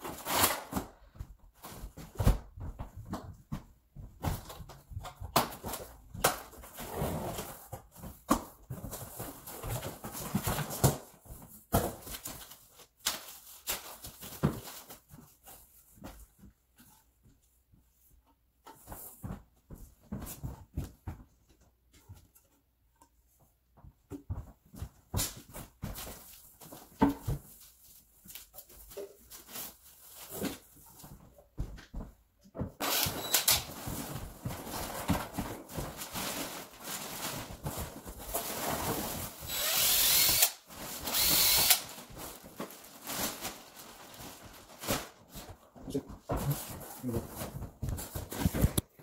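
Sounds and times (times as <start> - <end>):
cordless drill running: 32.8 - 33.6, 39.5 - 41.8.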